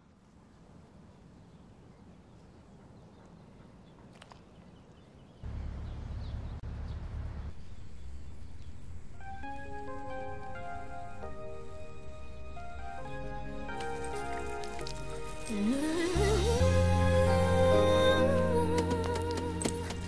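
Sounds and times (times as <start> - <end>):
low rumbling ambience: 5.4 - 20.0
bell-like music notes: 9.8 - 20.0.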